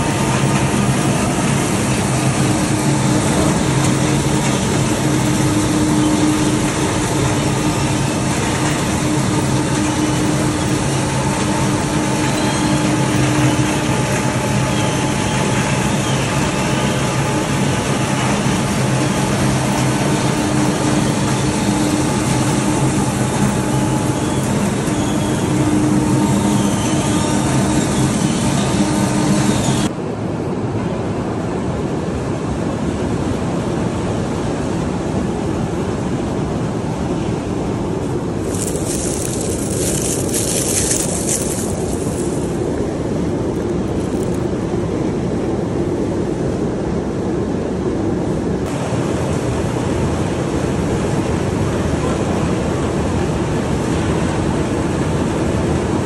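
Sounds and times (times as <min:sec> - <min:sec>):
harvesting machinery engine drone: 0:00.0 - 0:29.9, 0:37.4 - 0:47.0.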